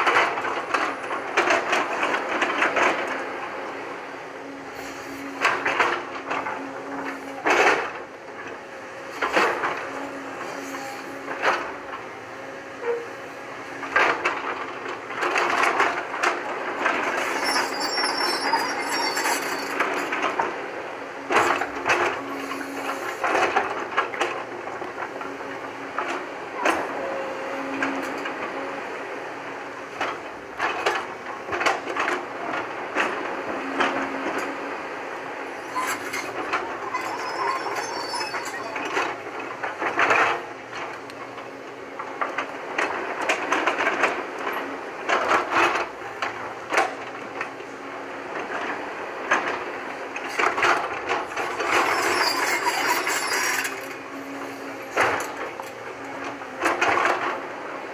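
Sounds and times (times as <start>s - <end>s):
excavator engine drone: 0.0s - 57.9s
metallic clanking and rattling: 50.3s - 54.0s.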